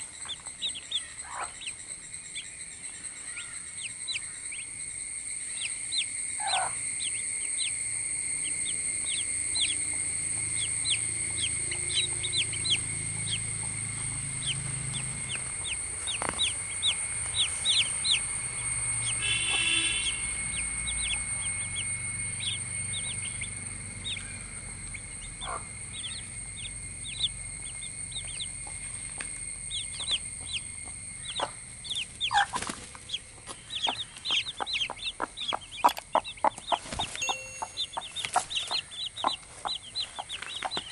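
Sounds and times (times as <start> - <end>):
baby chicks peeping: 0.0 - 4.8, 5.4 - 40.9
high-pitched buzz: 0.0 - 40.9.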